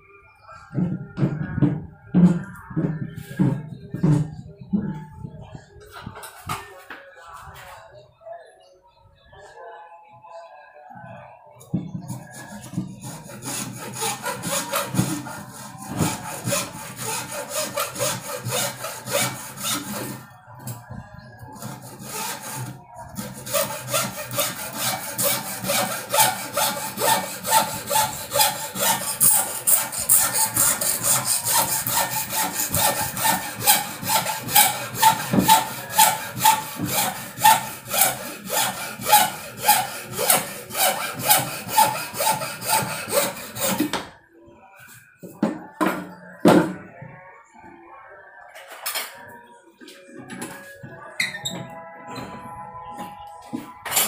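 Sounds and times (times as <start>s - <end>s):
hacksaw cutting wood: 12.7s - 20.2s, 21.6s - 44.0s.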